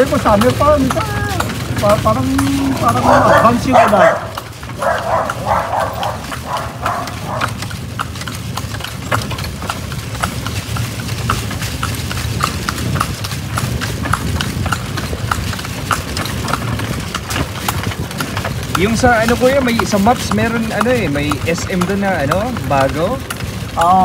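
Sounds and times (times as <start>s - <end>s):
horse hooves clip-clopping: 0.0s - 24.0s.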